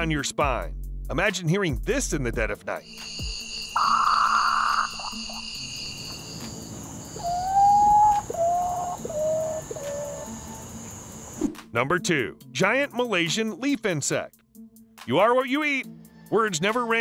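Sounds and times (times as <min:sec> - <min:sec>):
high insect trills: 0:02.8 - 0:11.5
bird mournful whistles: 0:03.3 - 0:11.4.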